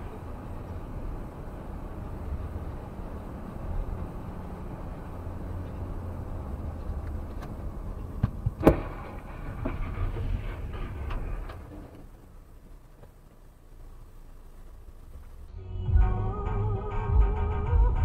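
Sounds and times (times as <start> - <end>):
road rumble inside car: 0.0 - 18.0
car crash bang: 8.2 - 12.1.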